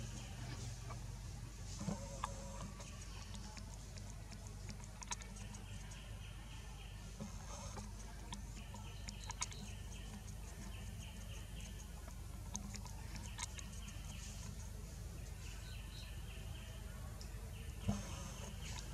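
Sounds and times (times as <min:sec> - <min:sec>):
steady low hum: 0:00.0 - 0:18.9
fast pulsing chirping: 0:02.4 - 0:16.5.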